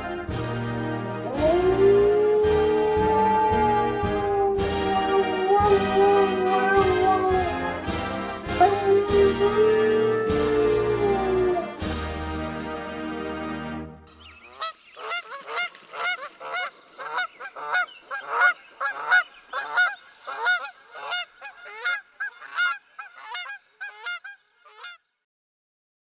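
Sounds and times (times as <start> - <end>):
closing music: 0.0 - 14.0
goose honking: 14.6 - 25.0.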